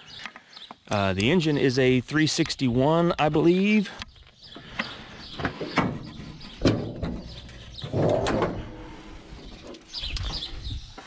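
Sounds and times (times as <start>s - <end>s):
metal hood scraping on hinges: 5.4s - 10.0s.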